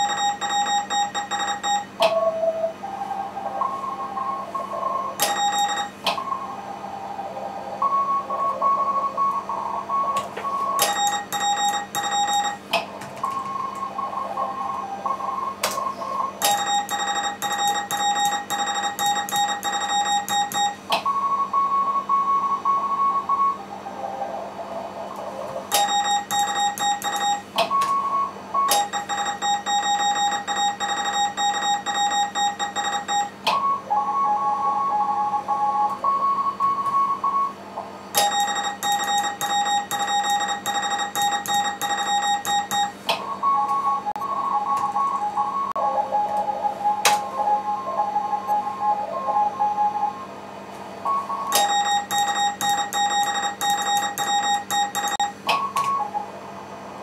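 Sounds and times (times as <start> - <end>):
low-pitched morse sidetone: 0.0 - 1.9, 16.4 - 23.6, 25.7 - 37.6, 38.2 - 50.4, 51.0 - 56.2
steady low hum: 0.0 - 57.0
high-pitched morse code from receiver: 25.8 - 27.5, 28.7 - 33.4, 38.2 - 44.1, 51.5 - 55.4.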